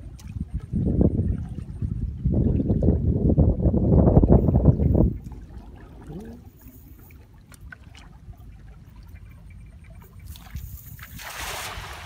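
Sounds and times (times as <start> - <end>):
low wind rumble: 0.0 - 12.0
net splashing on water: 10.3 - 12.0.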